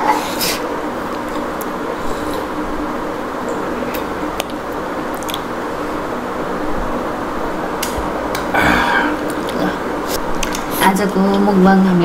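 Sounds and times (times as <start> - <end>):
background hum and hiss: 0.0 - 12.0
squishy mouth sounds of eating: 3.9 - 5.5.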